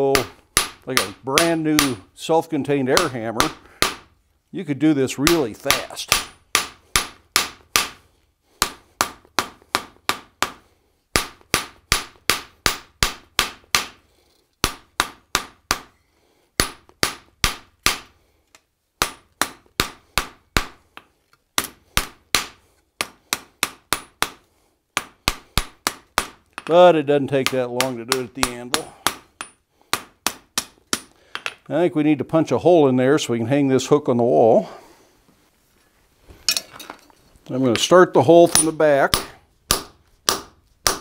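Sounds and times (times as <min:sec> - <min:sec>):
hammer striking steel on anvil: 0:00.1 - 0:02.1.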